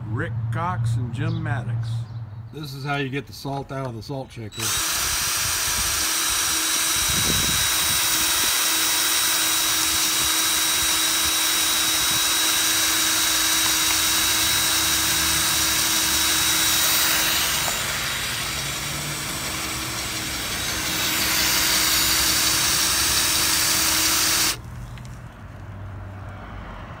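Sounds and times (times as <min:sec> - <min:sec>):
power drill running: 0:04.5 - 0:24.6.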